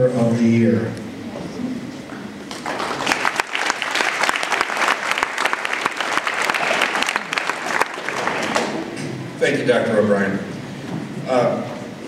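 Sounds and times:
audience applauding: 2.5s - 9.0s.

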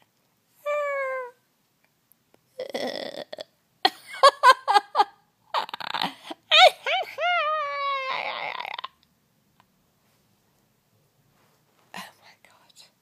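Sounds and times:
woman's high-pitched laughter: 3.9s - 8.8s
woman's falling vocal tone: 5.6s - 9.0s.

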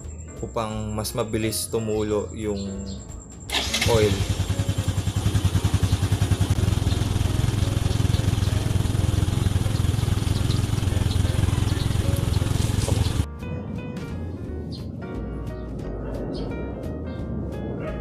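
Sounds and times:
engine idling: 3.5s - 13.3s.

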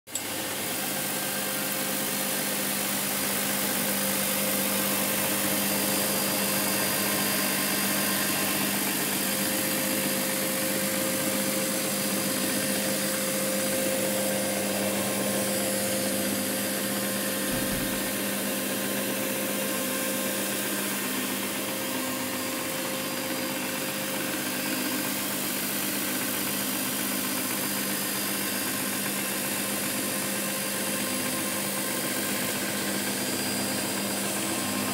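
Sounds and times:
carpet cleaning machine hum: 0.1s - 34.9s
low thump: 17.5s - 18.0s.

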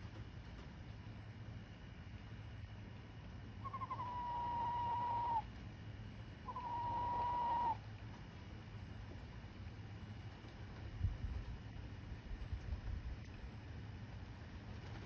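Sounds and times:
turkey hen whistling: 3.6s - 5.5s, 6.4s - 7.8s.

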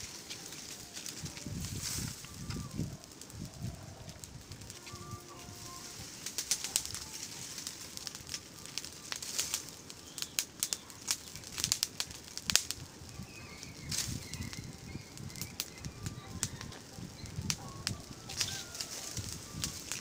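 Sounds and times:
brush fire crackling: 0.0s - 20.0s.

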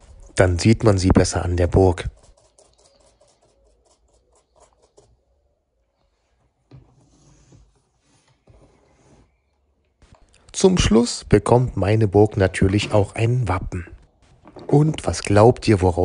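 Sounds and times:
paintbrush dabbing on cardboard: 0.0s - 5.6s.

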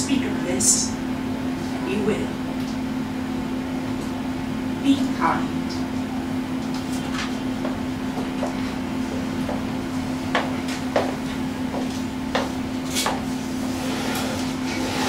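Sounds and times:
steady low hum: 0.0s - 15.0s
footsteps on wooden floor: 7.6s - 9.7s, 10.3s - 13.3s.

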